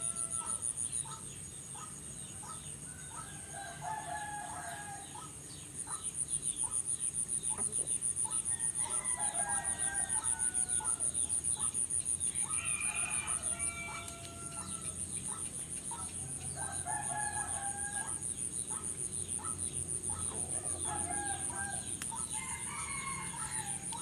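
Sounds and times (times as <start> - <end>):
roosters crowing: 0.0 - 0.7, 8.5 - 11.1, 12.4 - 15.1, 16.6 - 18.3, 20.4 - 24.0.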